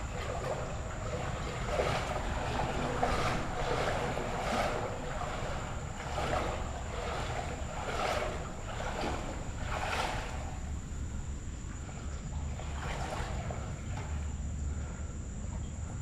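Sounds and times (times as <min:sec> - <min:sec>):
creek water rushing: 0:00.0 - 0:10.8
legs wading through water: 0:00.0 - 0:16.0.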